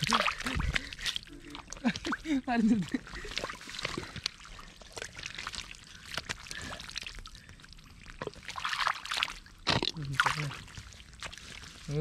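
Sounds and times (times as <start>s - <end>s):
hands splashing in muddy water: 0.0s - 2.2s, 8.2s - 12.0s.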